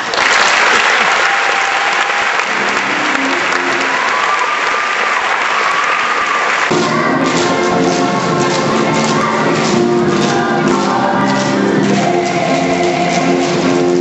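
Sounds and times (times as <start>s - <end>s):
audience applauding: 0.0s - 14.0s
music: 2.6s - 4.4s, 6.7s - 14.0s.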